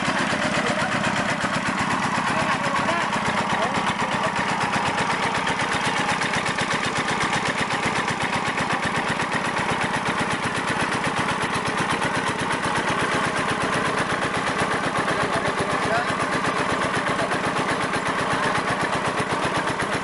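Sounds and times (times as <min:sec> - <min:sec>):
diesel engine chugging: 0:00.0 - 0:20.0.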